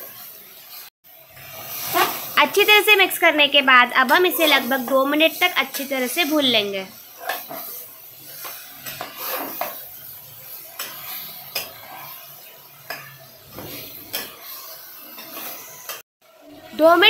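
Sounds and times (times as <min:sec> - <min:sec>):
light sizzle: 0:00.0 - 0:17.0
metal spatula scraping a pot: 0:04.1 - 0:16.5.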